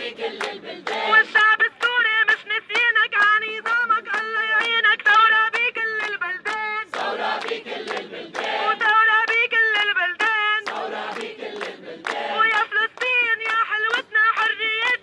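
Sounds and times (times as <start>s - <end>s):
crowd chanting in chorus: 0.0s - 1.4s, 6.8s - 9.1s, 10.6s - 12.7s
woman singing: 1.0s - 6.9s, 8.7s - 10.7s, 12.3s - 15.0s.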